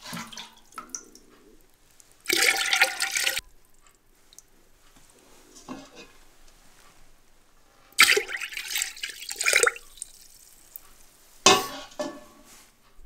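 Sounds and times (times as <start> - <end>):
brine splashing in a crock: 0.0 - 3.4, 8.0 - 11.1
faint water trickles and drips: 0.0 - 12.1.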